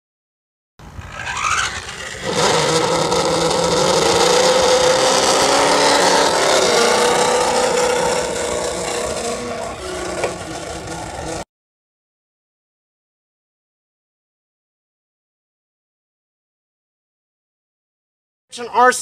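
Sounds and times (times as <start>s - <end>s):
rising motor whine: 0.8s - 11.4s
motor running: 0.9s - 11.4s.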